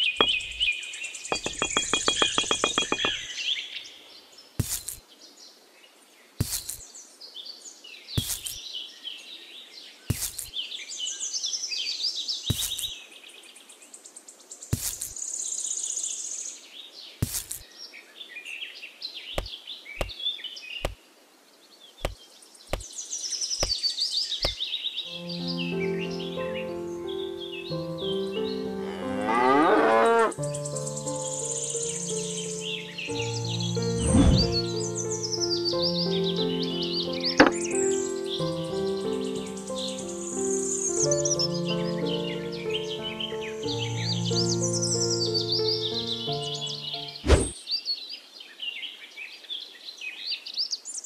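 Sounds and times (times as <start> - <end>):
sharp taps: 0.0 - 0.7, 1.3 - 3.2, 12.5 - 12.9, 19.4 - 20.1, 22.0 - 22.9
birds chirping and singing: 0.0 - 4.0, 12.3 - 13.2, 21.8 - 48.8.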